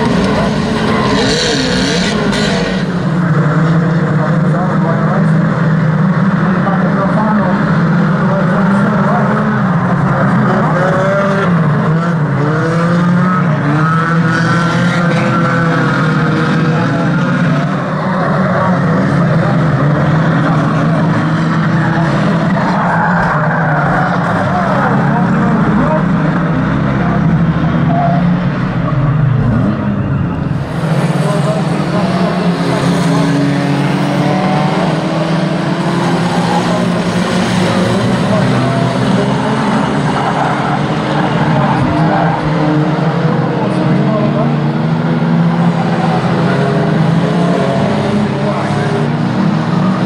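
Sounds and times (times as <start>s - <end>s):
racing car engines revving: 0.0s - 50.0s.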